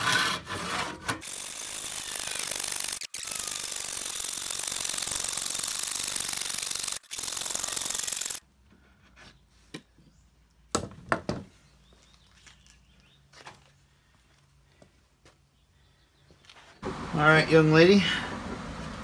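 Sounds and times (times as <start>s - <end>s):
handsaw cutting wood: 0.0s - 8.4s.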